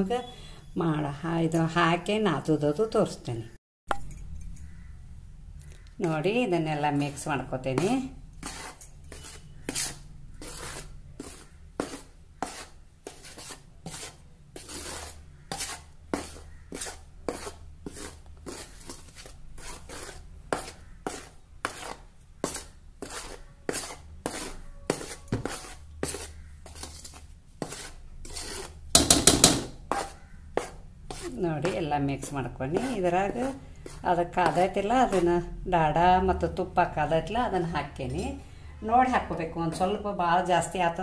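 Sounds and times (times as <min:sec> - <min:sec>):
metal spoon scraping steel plate: 0:05.7 - 0:35.4
loud knock: 0:29.0 - 0:29.8.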